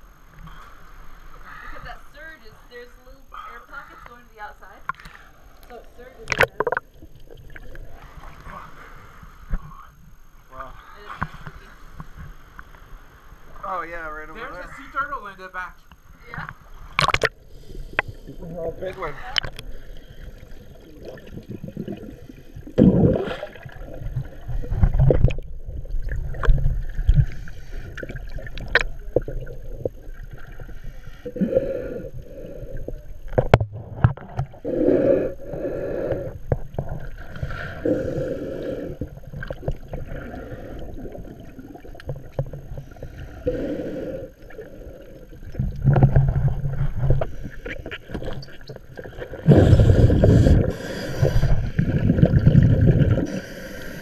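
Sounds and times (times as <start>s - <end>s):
underwater bubbles gurgling: 6.0s - 9.7s, 15.9s - 54.0s.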